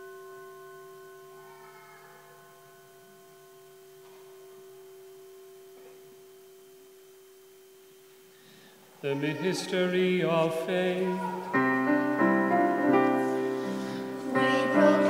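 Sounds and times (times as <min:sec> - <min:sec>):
held musical tone: 0:09.0 - 0:15.0.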